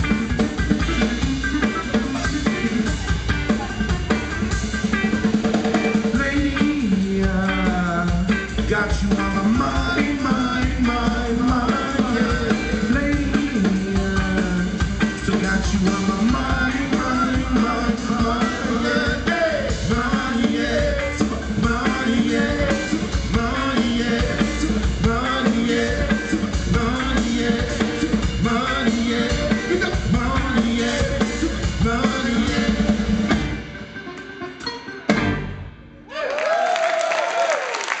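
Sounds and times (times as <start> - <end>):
live band playing: 0.0 - 36.1
person singing: 5.8 - 33.4.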